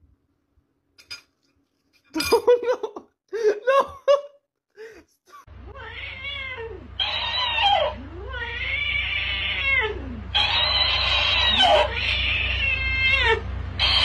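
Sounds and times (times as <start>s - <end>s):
cat yowling: 5.7s - 14.0s.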